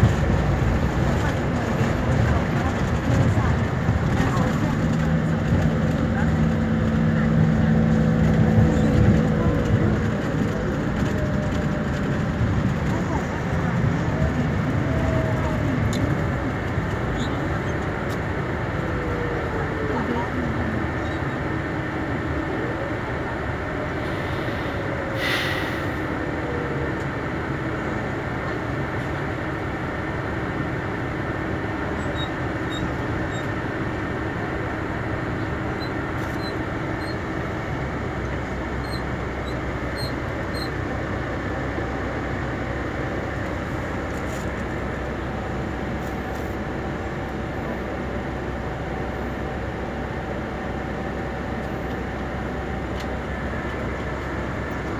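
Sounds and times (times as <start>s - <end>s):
bus engine and road noise: 0.0s - 54.9s
short hiss: 24.1s - 26.0s.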